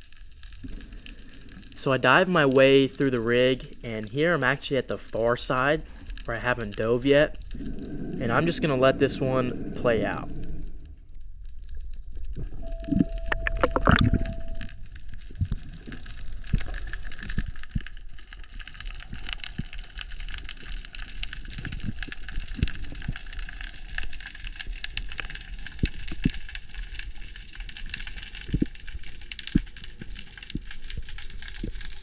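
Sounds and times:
faint crackling: 0.0 - 32.0
underwater hiss: 7.5 - 10.9.

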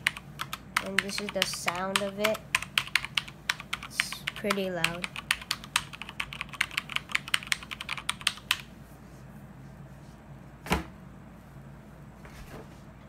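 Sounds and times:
mechanical keyboard typing: 0.0 - 8.7.

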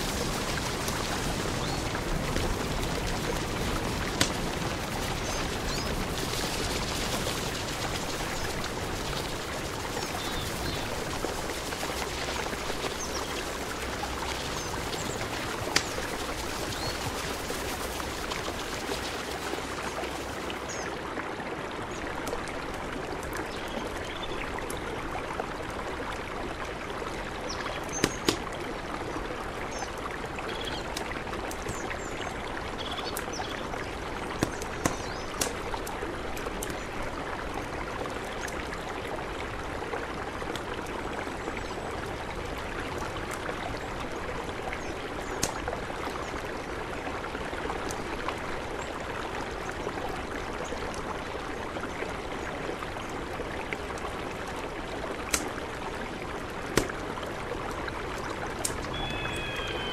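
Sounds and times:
campfire crackling pops: 0.0 - 19.0, 28.0 - 28.6, 34.4 - 35.9, 45.4 - 45.8, 55.2 - 55.7, 56.6 - 57.8, 58.5 - 59.6
river rushing: 0.0 - 23.4, 50.2 - 59.9
bird chirps: 58.9 - 59.9.

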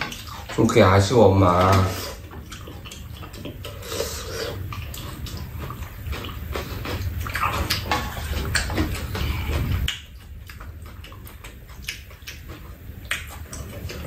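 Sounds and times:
utensils clicking against bowls: 0.0 - 10.1
chewing and slurping: 0.0 - 14.0.

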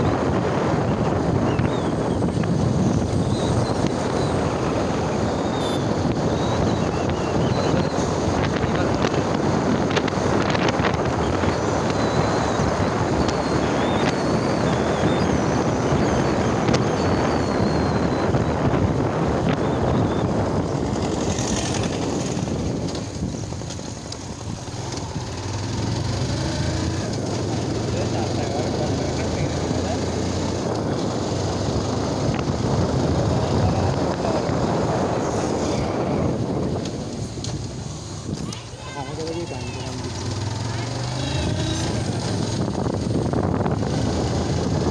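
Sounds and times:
motorcycle engine and road rush: 0.0 - 44.9
wind buffeting microphone: 0.0 - 44.9.

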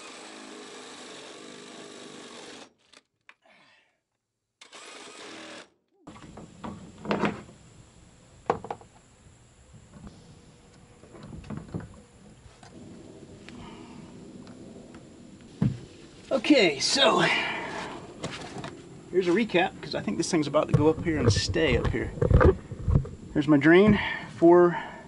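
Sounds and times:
cordless drill running: 0.0 - 2.7, 4.6 - 7.7.

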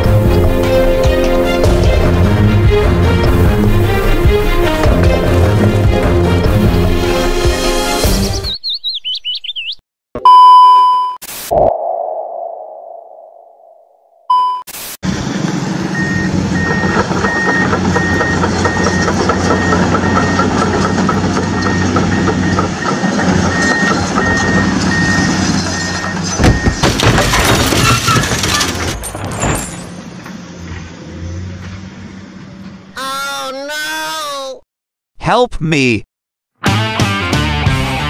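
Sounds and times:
warning beeps: 10.2 - 12.6.

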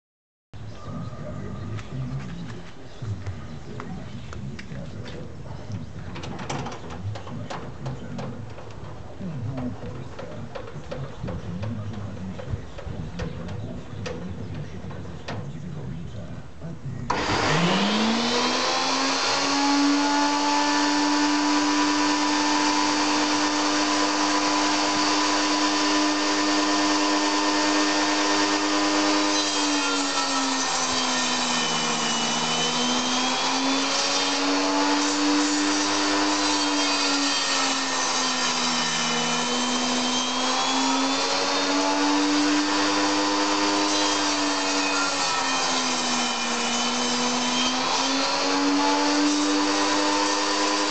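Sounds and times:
saw blade cutting wood: 17.1 - 50.9
table saw motor whine: 17.1 - 50.9.

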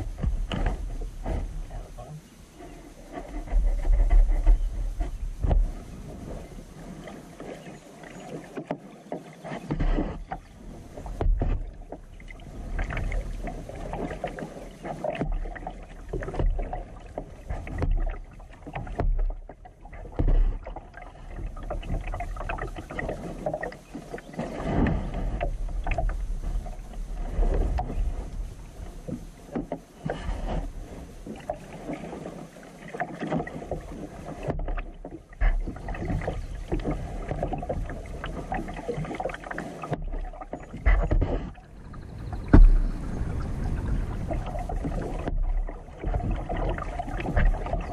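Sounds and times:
kayak paddle splashes: 0.0 - 47.9
low rumble: 41.5 - 46.5.

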